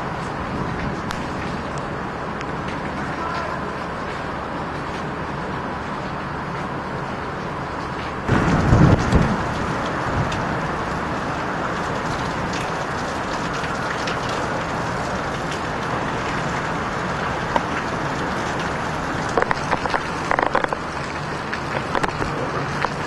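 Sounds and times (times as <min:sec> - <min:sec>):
heavy rain downpour: 0:00.0 - 0:23.0
sharp taps and knocks: 0:19.3 - 0:20.8, 0:21.5 - 0:23.0.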